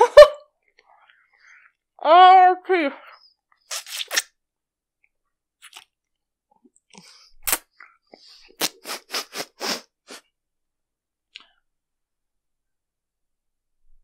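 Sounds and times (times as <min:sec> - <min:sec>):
sharp mouth smacks: 0:03.7 - 0:04.3
wet chewing mouth noises: 0:03.7 - 0:04.3, 0:05.6 - 0:06.0, 0:06.7 - 0:09.8.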